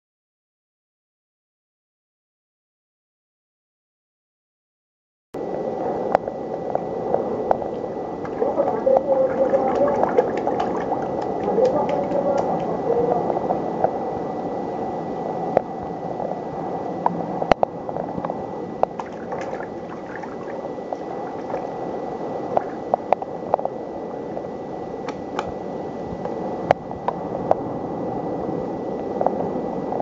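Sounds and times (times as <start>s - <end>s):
steady rushing noise: 5.4s - 30.0s
water dripping into water: 8.2s - 12.8s, 18.8s - 21.7s.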